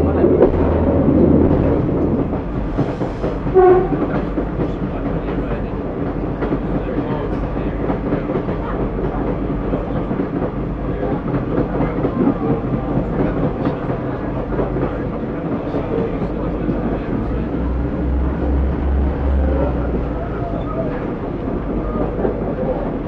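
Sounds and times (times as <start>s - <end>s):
diesel train rumble: 0.0s - 23.0s
train horn toot: 3.5s - 4.2s.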